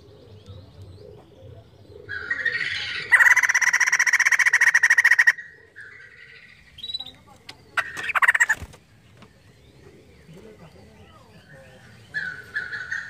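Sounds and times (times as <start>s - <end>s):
bird calling: 0.0s - 13.0s
bird chattering rattle: 2.6s - 5.4s, 6.9s - 8.8s.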